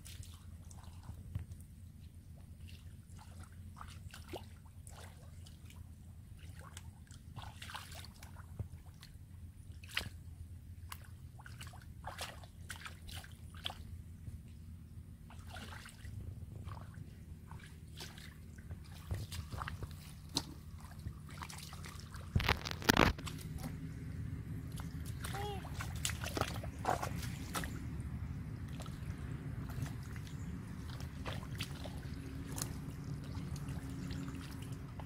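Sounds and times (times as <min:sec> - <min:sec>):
splashing in muddy water: 0:00.0 - 0:35.0
low rumble: 0:13.8 - 0:35.0.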